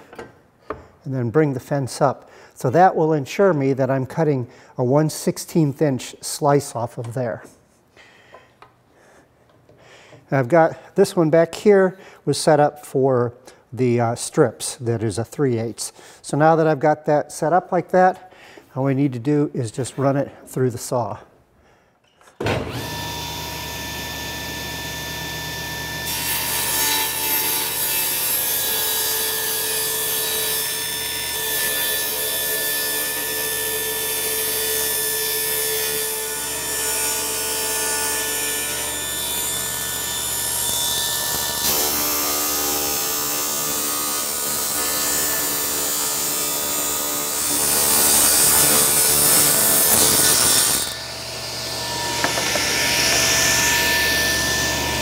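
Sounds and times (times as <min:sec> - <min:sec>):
table saw motor hum: 0:22.4 - 0:55.0
saw blade cutting wood: 0:26.0 - 0:55.0.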